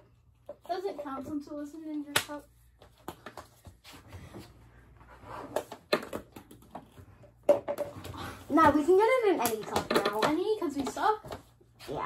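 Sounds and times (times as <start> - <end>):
small ball bouncing on wooden floor: 5.5 - 11.5.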